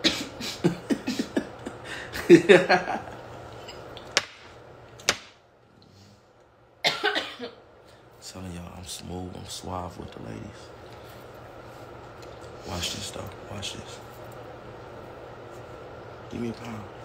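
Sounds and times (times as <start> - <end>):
man laughing: 0.1 - 3.4.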